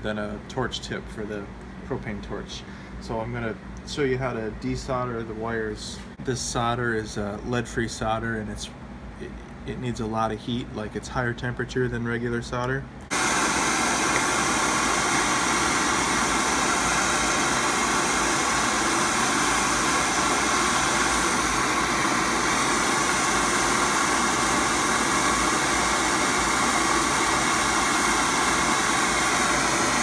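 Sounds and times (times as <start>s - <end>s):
torch flame hissing: 13.1s - 30.0s.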